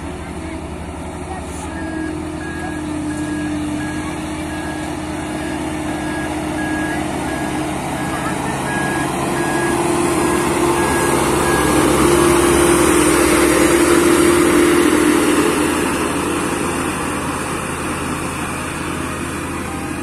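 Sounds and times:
road roller diesel engine running: 0.0s - 20.0s
reversing alarm beeping: 1.6s - 15.8s.

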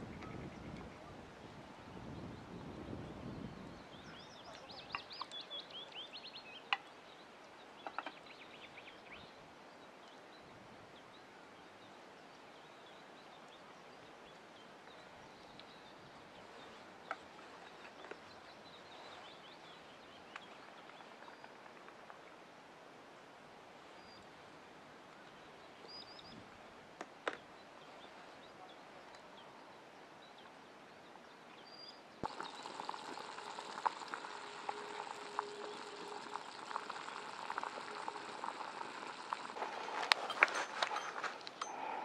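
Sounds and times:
faint outdoor background: 0.0s - 42.0s
small birds trilling: 31.7s - 39.6s.

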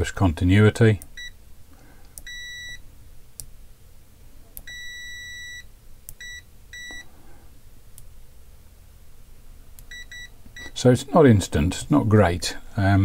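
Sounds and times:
multimeter high-pitched beeps: 2.2s - 2.8s, 4.6s - 7.1s, 9.9s - 10.8s.

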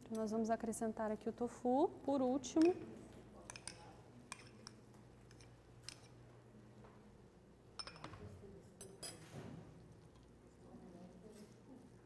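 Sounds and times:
spoon tapping bowl: 7.8s - 8.2s.

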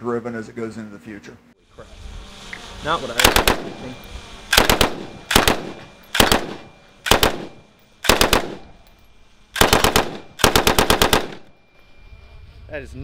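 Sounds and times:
machine gun bursts with echo: 3.2s - 3.9s, 4.5s - 8.8s, 9.5s - 11.5s.

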